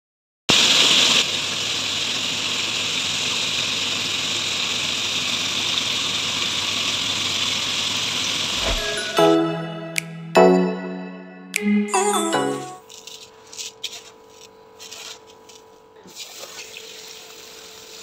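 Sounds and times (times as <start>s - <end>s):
food sizzling on stove: 16.2s - 18.0s.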